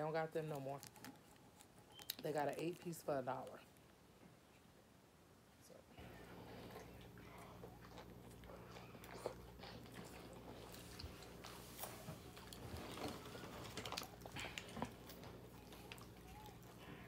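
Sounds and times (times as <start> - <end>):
faint low hum: 0.0 - 17.0
person chewing burger: 6.2 - 17.0.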